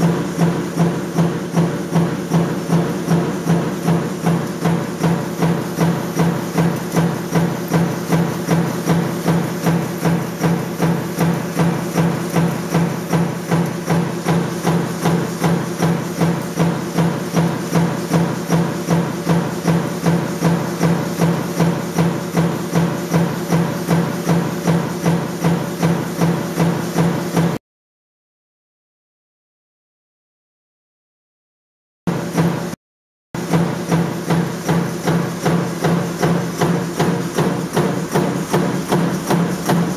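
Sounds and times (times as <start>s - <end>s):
metal-forming machine clacking: 0.0s - 27.6s, 33.4s - 39.9s.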